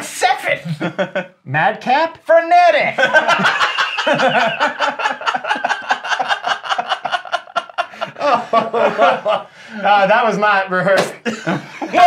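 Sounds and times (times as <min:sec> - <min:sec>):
men laughing: 0:00.6 - 0:01.4, 0:02.9 - 0:10.1, 0:11.2 - 0:12.0.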